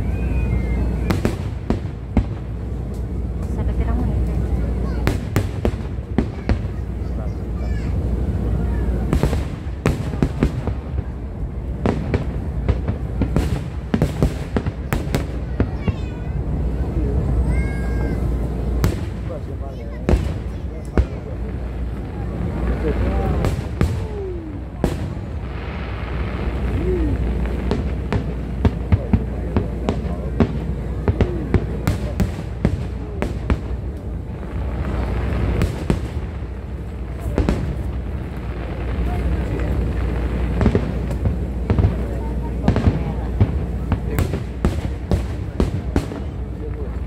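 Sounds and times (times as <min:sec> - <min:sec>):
fireworks booms and cracks: 0:00.0 - 0:47.0
steady low rumble: 0:00.0 - 0:47.0.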